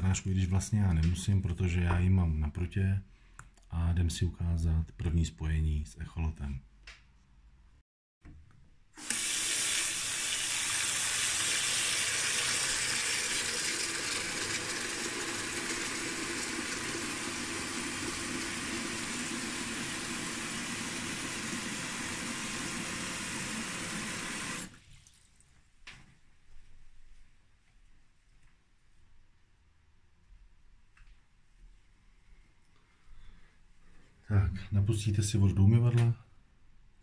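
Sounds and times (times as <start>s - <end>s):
tap running into a washbasin: 9.0s - 25.3s.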